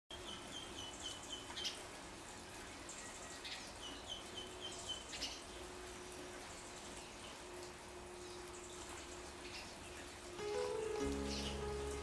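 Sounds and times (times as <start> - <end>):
small birds singing and chirping: 0.1 - 5.7, 9.4 - 12.0.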